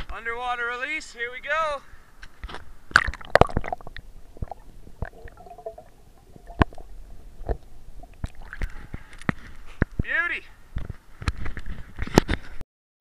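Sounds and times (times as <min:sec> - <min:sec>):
muffled underwater gurgling rumble: 0:03.3 - 0:09.1
clicks and knocks against camera: 0:10.7 - 0:12.6.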